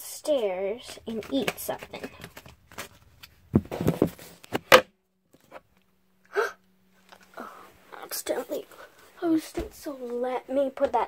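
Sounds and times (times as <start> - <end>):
faint steady hum: 0.0 - 11.0
gasp-like voice sound: 6.3 - 6.6.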